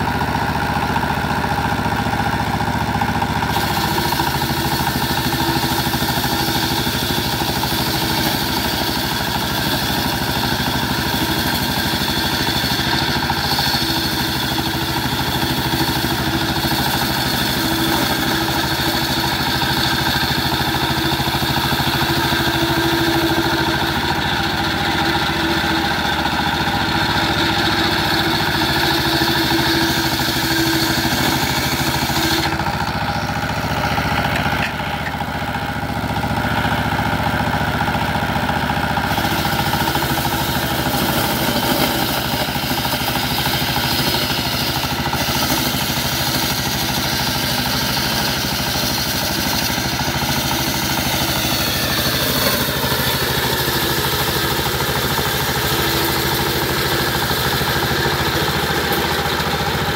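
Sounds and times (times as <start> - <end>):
diesel engine running: 0.0 - 59.9
circular saw cutting hiss: 3.6 - 32.7.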